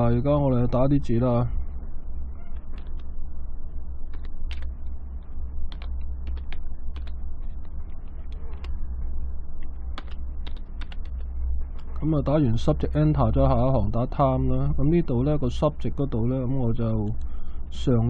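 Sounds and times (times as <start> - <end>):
steady low hum: 0.0 - 18.0
keyboard typing: 2.4 - 3.1, 4.0 - 8.8, 9.6 - 12.1.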